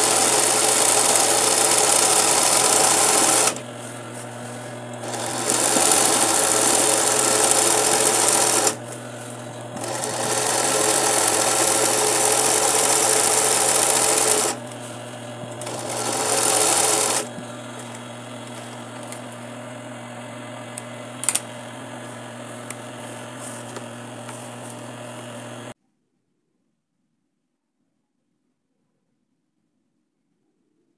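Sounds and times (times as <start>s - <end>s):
sewing machine stitching: 0.0s - 25.7s
sewing machine motor hum: 0.0s - 25.8s.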